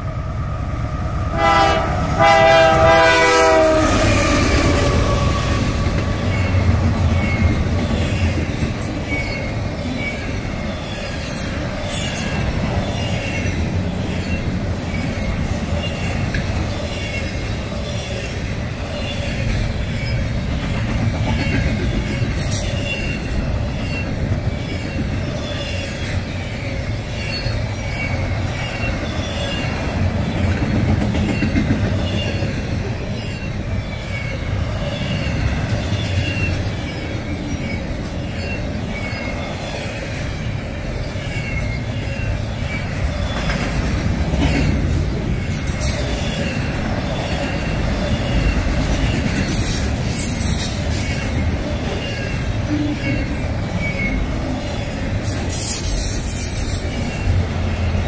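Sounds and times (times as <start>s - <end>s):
diesel locomotive rumbling: 0.0s - 58.0s
train rolling noise: 0.0s - 58.0s
locomotive air horn: 1.3s - 4.6s.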